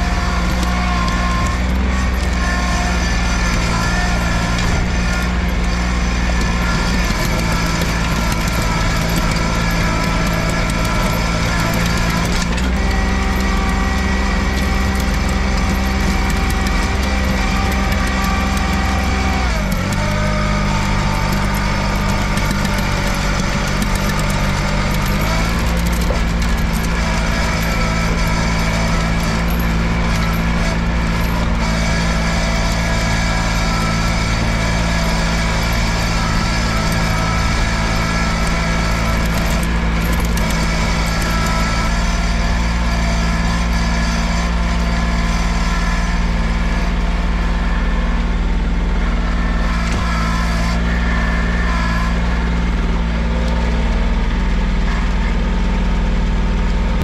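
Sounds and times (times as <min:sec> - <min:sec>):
garden tractor engine running: 0:00.0 - 0:57.0.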